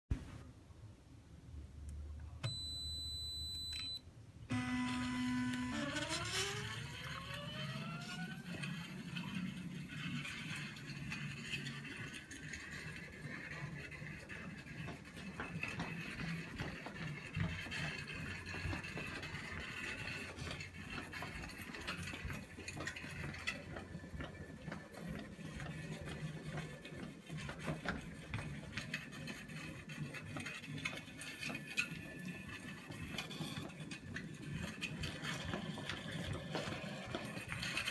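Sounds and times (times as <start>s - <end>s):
stepper motors whining: 4.5s - 9.5s.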